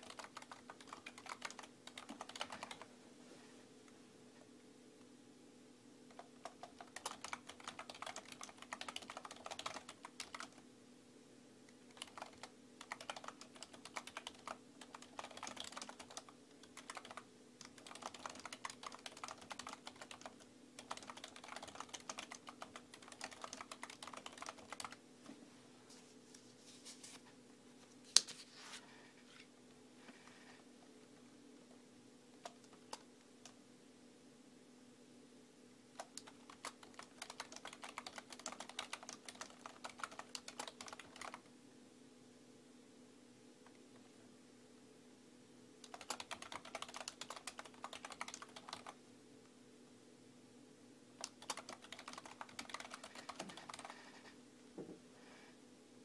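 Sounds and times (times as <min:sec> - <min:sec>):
typing on computer keyboard: 0:00.0 - 0:02.9, 0:06.1 - 0:10.6, 0:11.9 - 0:25.0, 0:32.4 - 0:33.6, 0:36.0 - 0:41.5, 0:45.8 - 0:49.0, 0:51.2 - 0:54.2
faint steady hum: 0:00.0 - 0:56.0.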